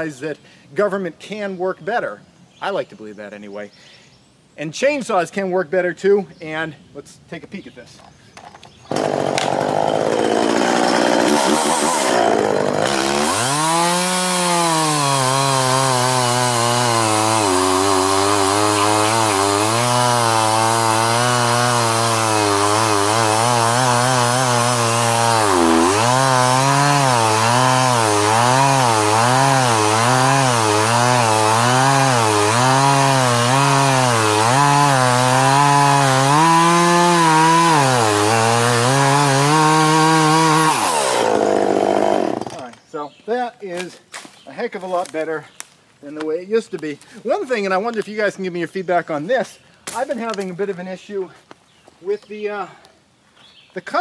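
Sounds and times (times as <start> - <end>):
chainsaw cutting log: 8.8 - 42.8.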